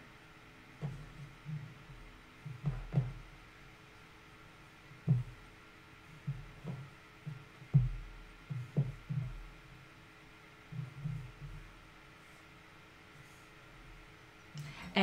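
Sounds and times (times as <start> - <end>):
fabric pats on wooden table: 2.5 - 3.2, 5.1 - 5.4, 6.2 - 9.4.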